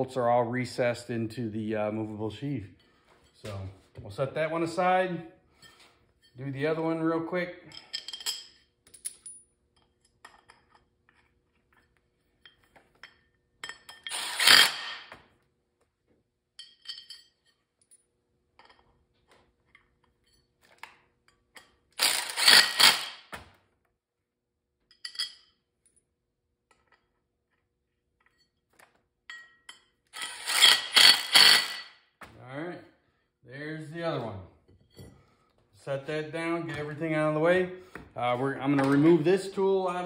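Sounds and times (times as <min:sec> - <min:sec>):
small metal parts clinking: 0:07.7 - 0:15.1, 0:16.6 - 0:18.0, 0:19.7 - 0:23.3, 0:24.9 - 0:26.0, 0:29.3 - 0:32.0
cordless power driver running: 0:22.0 - 0:23.2.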